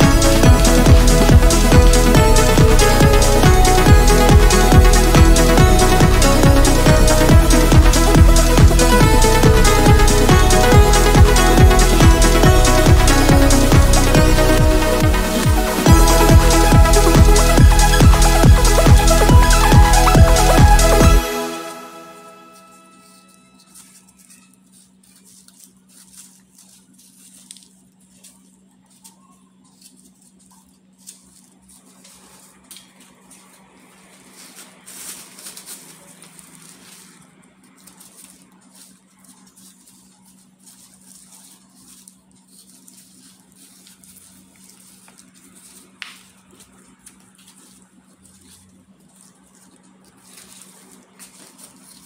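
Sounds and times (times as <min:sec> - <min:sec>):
low hum: 0:00.0 - 0:23.6.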